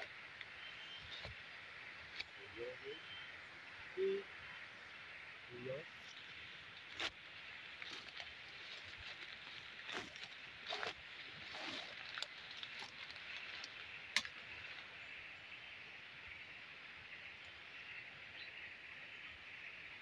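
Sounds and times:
leaves and twigs rustling snapping: 0:02.1 - 0:02.4, 0:06.1 - 0:14.9
footsteps in undergrowth: 0:06.0 - 0:15.0.

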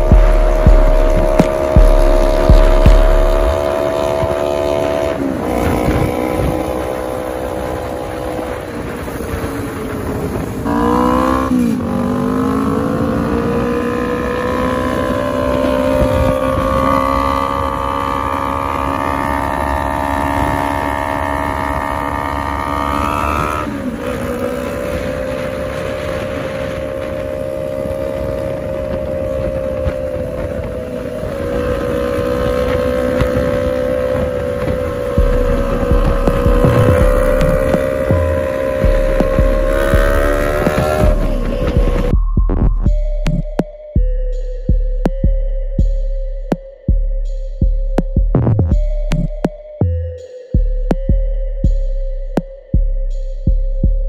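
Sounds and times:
motorcycle engine and exhaust: 0:00.0 - 0:54.0.

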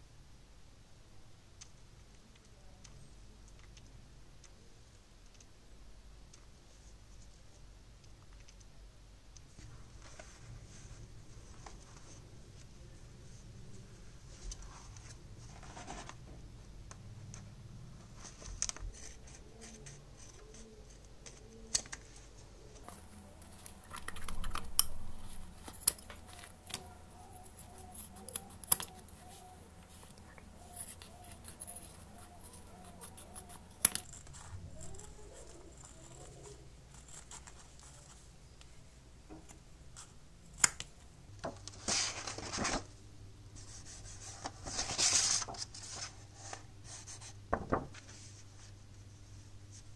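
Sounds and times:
rustling: 0:09.5 - 0:16.4, 0:17.3 - 0:38.8, 0:43.6 - 0:49.9.

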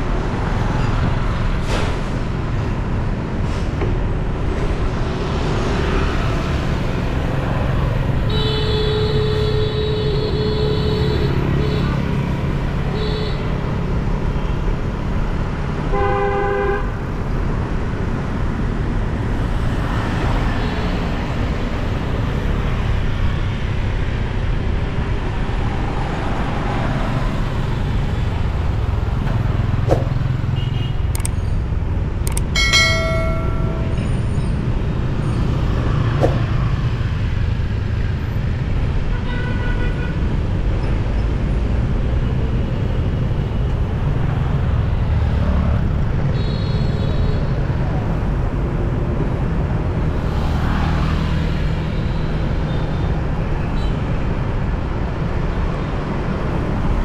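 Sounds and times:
road and wind noise: 0:00.0 - 0:57.0
vehicle horns beeping: 0:08.3 - 0:12.1, 0:29.9 - 0:31.3, 0:46.3 - 0:47.3.

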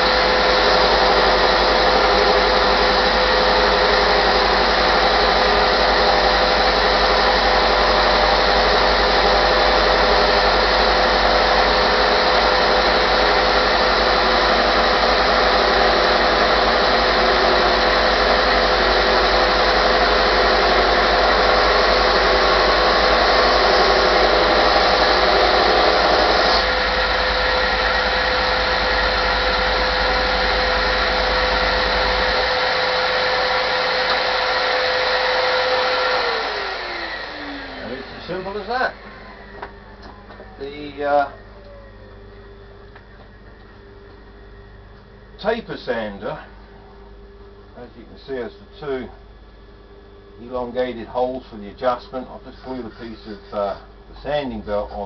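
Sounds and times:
rush of sanding belt and vacuum: 0:00.0 - 0:39.6
sander motor whine: 0:00.0 - 0:51.2.

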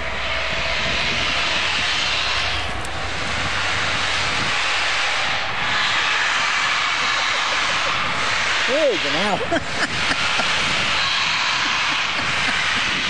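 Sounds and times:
low rumble: 0:00.0 - 0:13.0
steam locomotive hissing steam: 0:00.0 - 0:13.0.

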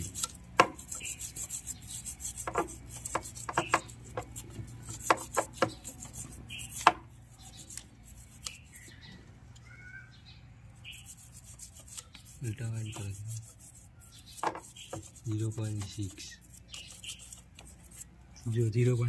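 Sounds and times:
brush tapping against metal: 0:00.0 - 0:07.0, 0:11.6 - 0:18.0
toothbrush scrubbing metal: 0:00.0 - 0:08.9, 0:10.8 - 0:19.0.

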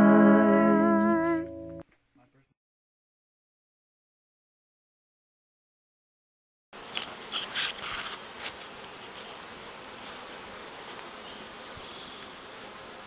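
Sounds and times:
honeybees buzzing: 0:06.8 - 0:13.0.

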